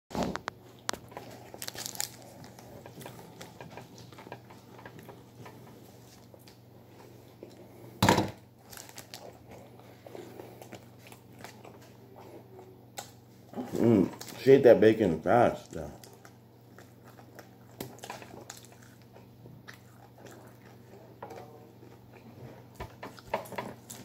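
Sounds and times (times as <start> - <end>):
paper wrapper crinkling: 0.8 - 4.1, 8.6 - 9.5.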